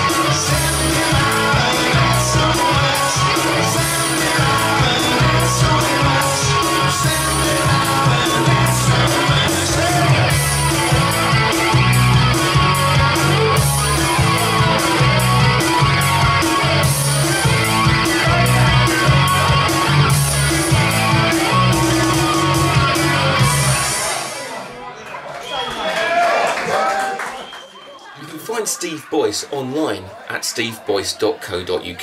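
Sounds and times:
electric guitar through amplifier: 0.0s - 24.5s.

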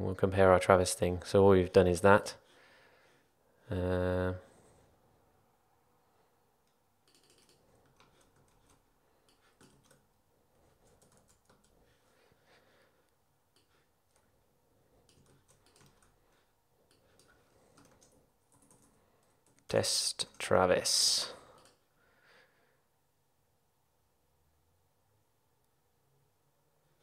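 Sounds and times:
faint keyboard typing: 6.6s - 21.9s.

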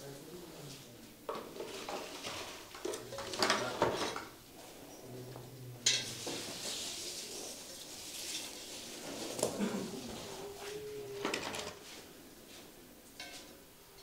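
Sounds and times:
rustling: 0.6s - 13.6s
hard objects clattering and scraping: 1.3s - 4.7s, 5.8s - 12.1s.

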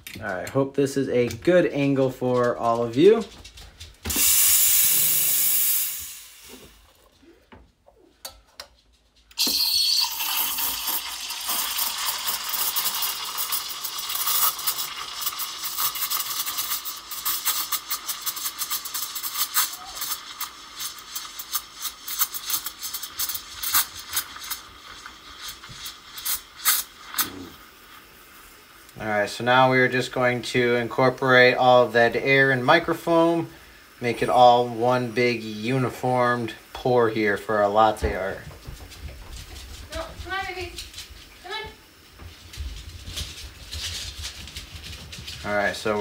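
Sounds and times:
steam wand blast: 4.1s - 6.8s, 9.4s - 29.9s
steam hissing into milk: 4.1s - 7.0s, 9.4s - 38.4s.

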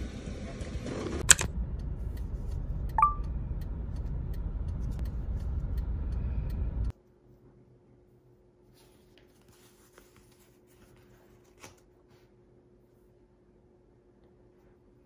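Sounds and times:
short beep: 3.0s - 3.2s.

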